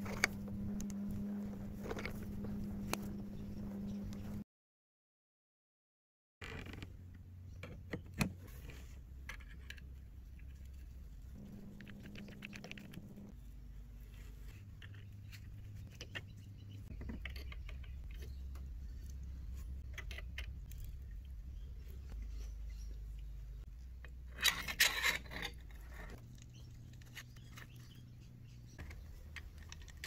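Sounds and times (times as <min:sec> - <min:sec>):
low steady hum: 0:00.0 - 0:04.4, 0:06.4 - 0:30.0
plastic and metal parts clicking: 0:28.8 - 0:30.0.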